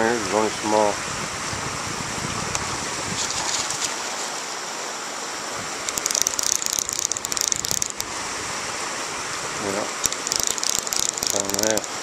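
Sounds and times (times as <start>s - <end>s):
river water rushing: 0.2s - 12.0s
fishing reel ratchet clicking: 5.9s - 8.1s, 10.0s - 12.0s.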